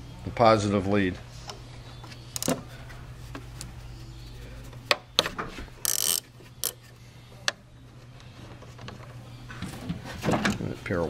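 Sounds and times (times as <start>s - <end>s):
steady low hum: 0.0s - 11.0s
wrench clicking on metal: 5.8s - 6.8s.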